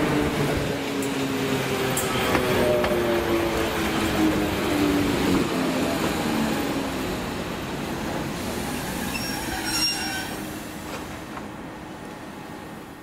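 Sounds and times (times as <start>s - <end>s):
high-pitched brake squeal: 8.6s - 10.6s.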